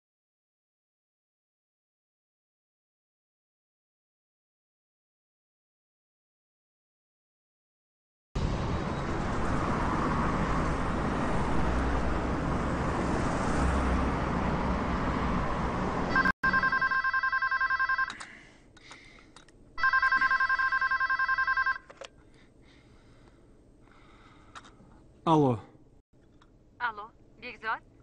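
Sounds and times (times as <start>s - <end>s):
telephone ringing electronic trill: 16.1s - 18.2s, 19.8s - 21.9s.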